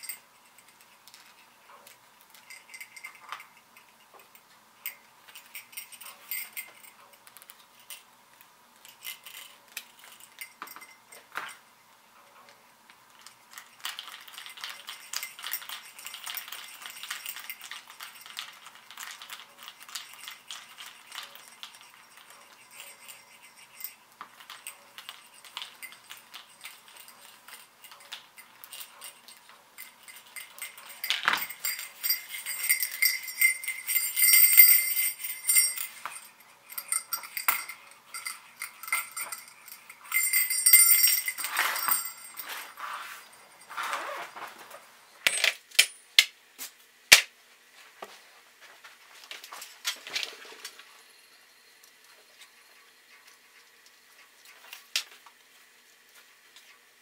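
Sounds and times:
jingle bell jingling: 0:00.0 - 0:01.5, 0:02.3 - 0:07.1, 0:08.8 - 0:11.6, 0:13.5 - 0:44.4
metal hardware clicking and rattling: 0:00.0 - 0:08.1, 0:13.2 - 0:42.8.

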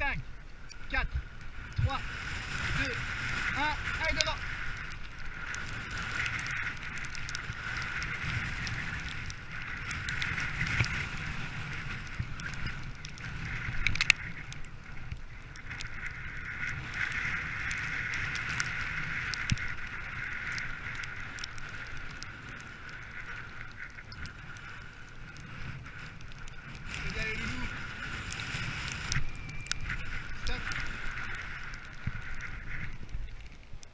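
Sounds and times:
sled runners hissing on snow: 0:00.9 - 0:14.4
scattered clicks: 0:02.6 - 0:33.9.

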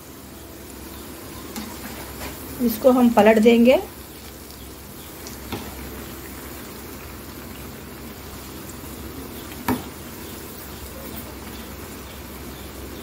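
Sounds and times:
fritters sizzling in oil: 0:00.0 - 0:13.0.

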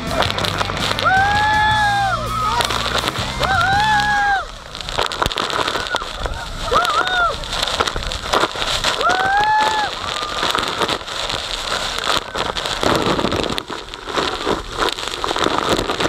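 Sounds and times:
waterfall spray rushing: 0:00.0 - 0:16.0
person shrieking: 0:03.4 - 0:04.5, 0:06.7 - 0:07.5.

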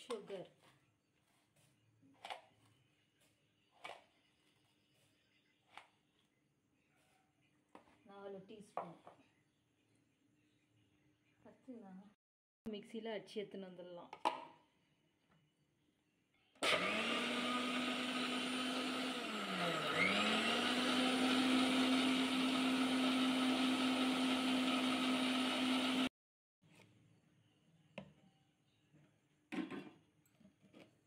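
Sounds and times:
mixer grinder motor whining: 0:16.6 - 0:26.1.

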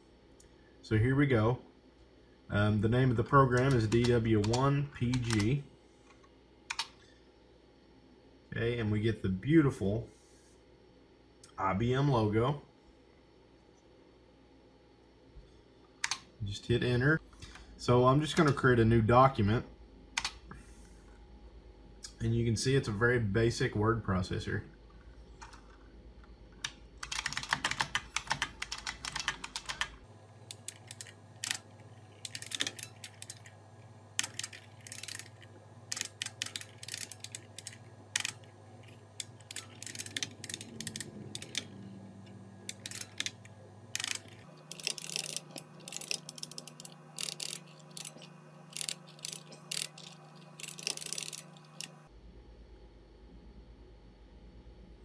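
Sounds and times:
low steady hum: 0:00.0 - 0:55.0
keyboard keys clicking: 0:03.5 - 0:05.5, 0:26.6 - 0:33.5, 0:34.2 - 0:52.0.

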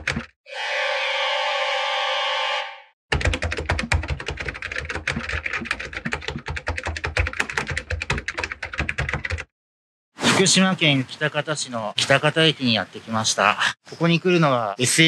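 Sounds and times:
steady sustained sound effect: 0:00.5 - 0:03.0.

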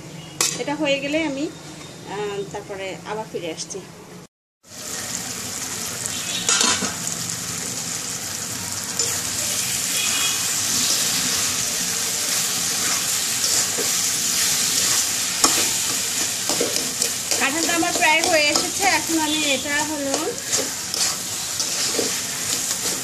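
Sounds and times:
curry sizzling in a wok: 0:04.6 - 0:23.0
spatula stirring and scraping: 0:12.3 - 0:23.0.

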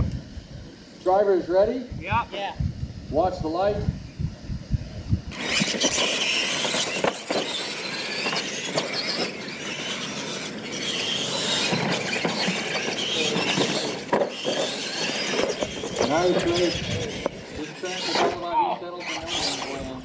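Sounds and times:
rc truck motors whining: 0:03.9 - 0:20.0.

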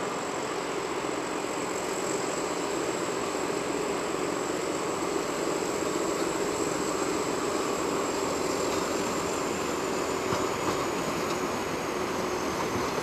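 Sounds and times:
diesel locomotive running: 0:00.0 - 0:13.0.

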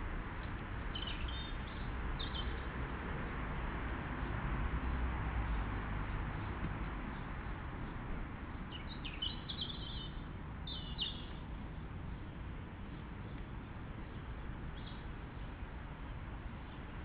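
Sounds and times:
bird chirping: 0:00.9 - 0:02.6, 0:08.7 - 0:11.4, 0:14.8 - 0:15.5.

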